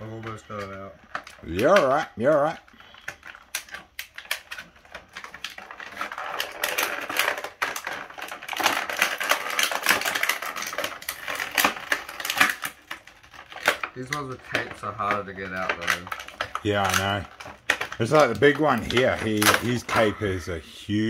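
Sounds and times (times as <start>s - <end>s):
plastic packaging crackling: 0.0s - 21.0s.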